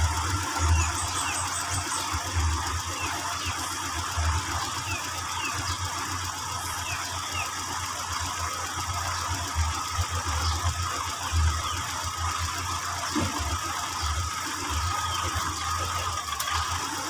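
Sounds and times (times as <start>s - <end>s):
car engine idling roughly: 0.0s - 17.0s.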